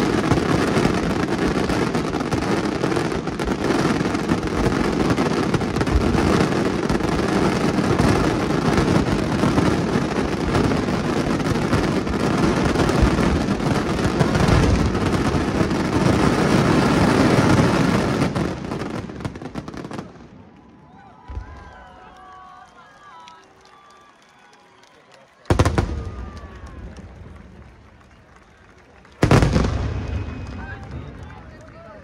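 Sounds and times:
fireworks bursting in rapid barrage: 0.0 - 20.4, 25.5 - 27.7, 29.1 - 32.0.

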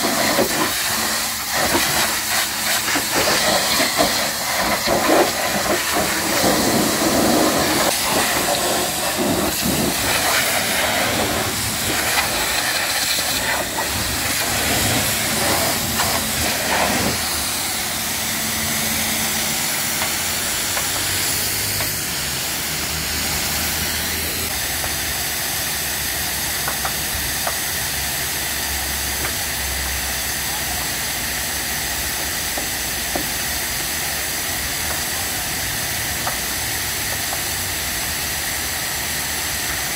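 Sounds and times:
pressure washer spraying water: 0.0 - 30.4
low hum: 5.5 - 24.2.

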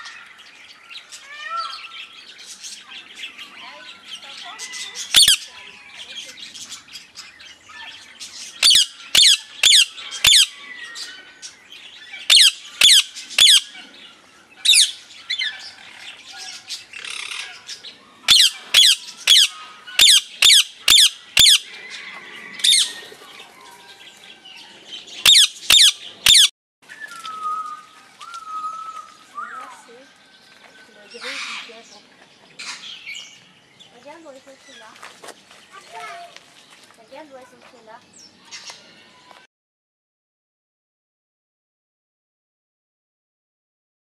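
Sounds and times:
parakeets screeching: 1.0 - 26.5, 31.1 - 32.0, 32.6 - 33.4.

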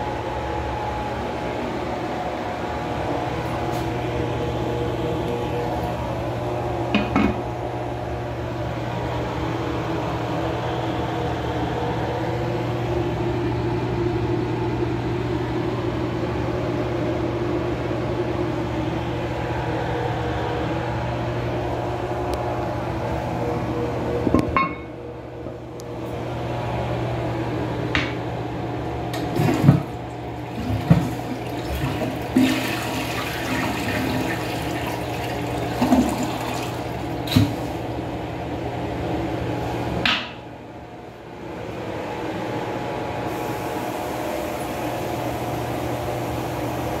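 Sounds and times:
steady low hum: 0.0 - 47.0
toilet flushing: 29.1 - 38.1.

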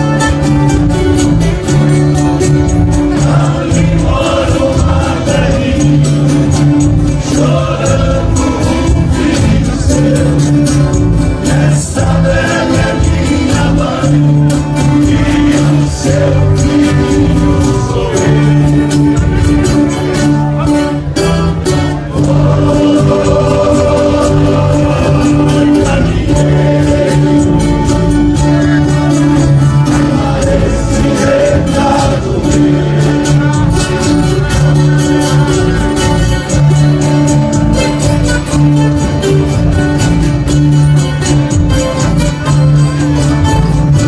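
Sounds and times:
country music on guitars: 0.0 - 44.0
men singing together: 2.8 - 20.0, 21.2 - 36.1.

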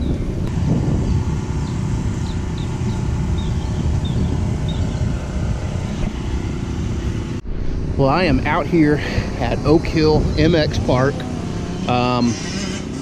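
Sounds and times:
low outdoor rumble: 0.0 - 13.0
high bird chirps: 1.0 - 5.2.

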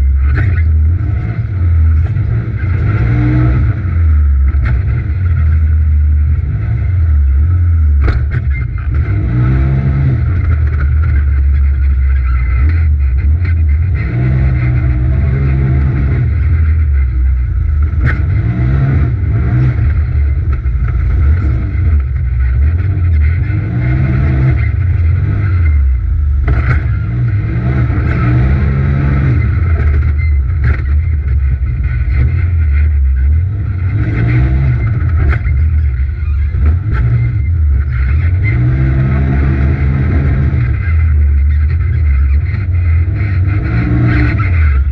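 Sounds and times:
engine revving at racing throttle: 0.0 - 44.9.

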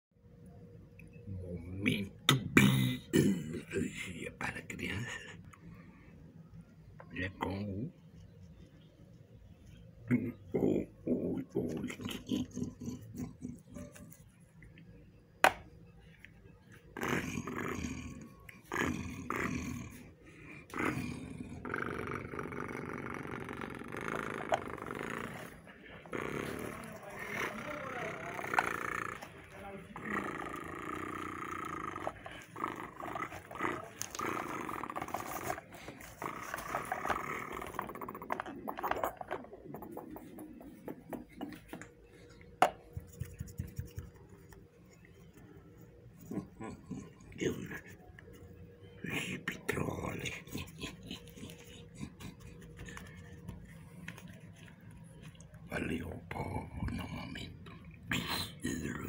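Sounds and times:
person growling: 10.1 - 14.0, 16.9 - 41.9
plastic toys clicking and rubbing: 26.5 - 42.0.

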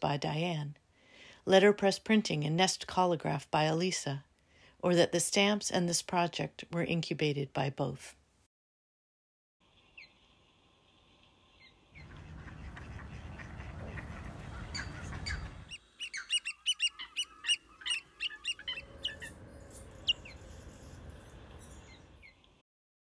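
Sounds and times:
birds calling: 11.5 - 22.5.

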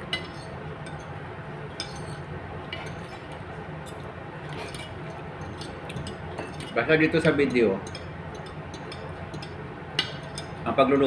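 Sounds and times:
cutlery clinking on a plate: 1.8 - 2.2.

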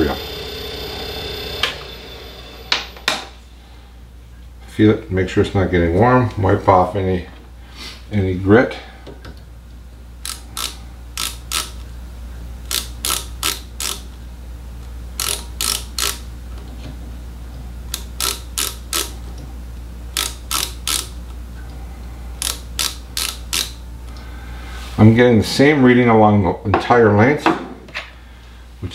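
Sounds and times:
steady low hum: 0.0 - 28.9
micrometer ratchet clicking: 10.2 - 11.9, 12.6 - 14.2, 15.2 - 16.3, 17.9 - 19.2, 20.1 - 21.4, 22.4 - 23.8.

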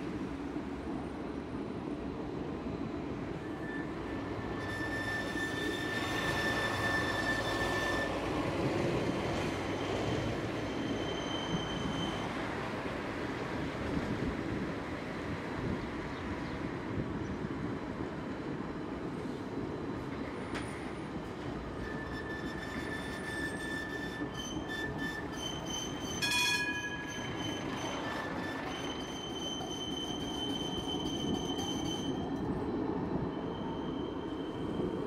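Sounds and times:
tram wheels rumbling on rail: 0.0 - 35.0
wheel squeal: 3.4 - 8.4, 9.4 - 12.6, 21.7 - 35.0.

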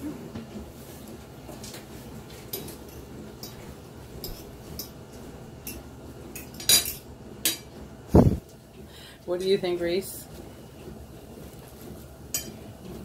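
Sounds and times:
forks clinking on plates: 6.4 - 7.7, 12.3 - 12.6.

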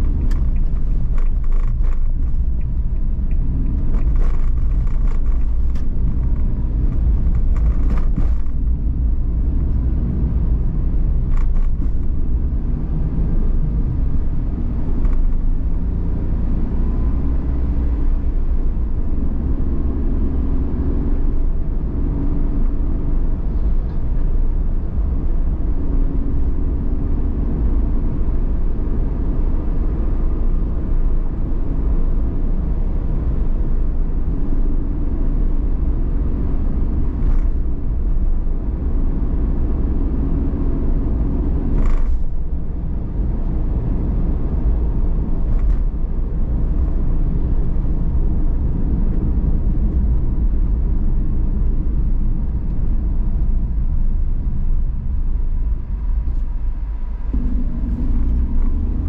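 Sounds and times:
car engine and tyre rumble: 0.0 - 59.0.

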